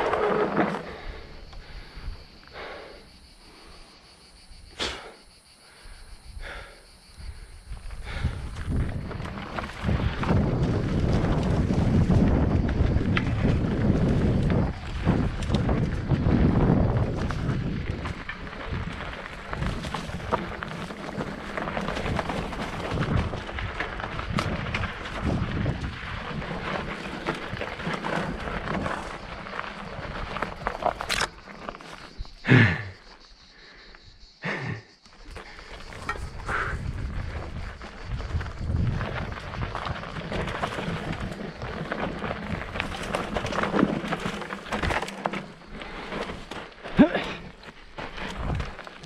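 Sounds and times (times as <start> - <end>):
bike rattling over bumps: 0.0 - 5.1, 5.7 - 33.4, 35.2 - 49.0
wind buffeting microphone: 5.9 - 31.4, 35.3 - 49.0
tyres crunching on gravel: 8.0 - 33.5, 35.1 - 49.0.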